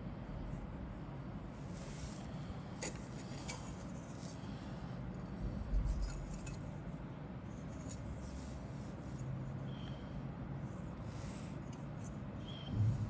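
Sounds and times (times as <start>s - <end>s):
low hum: 12.0s - 13.0s
dull thump: 12.7s - 13.0s.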